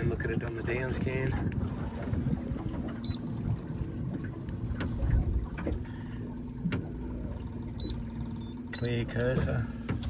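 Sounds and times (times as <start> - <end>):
steady low hum: 0.0 - 10.0
wind and water noise of a boat: 0.0 - 10.0
high key beep: 7.8 - 9.0.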